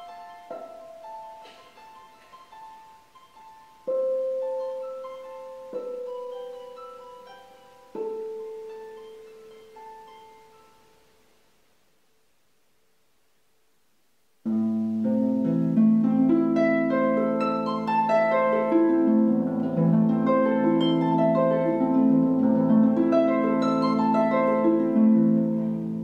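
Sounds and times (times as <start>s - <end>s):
harp notes and chords: 14.5s - 26.0s.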